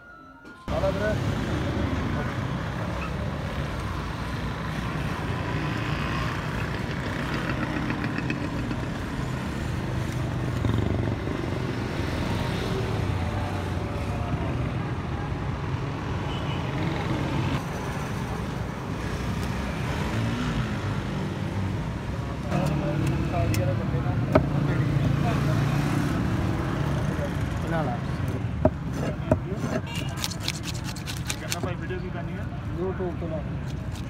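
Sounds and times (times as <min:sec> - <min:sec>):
road traffic hum: 0:00.0 - 0:34.0.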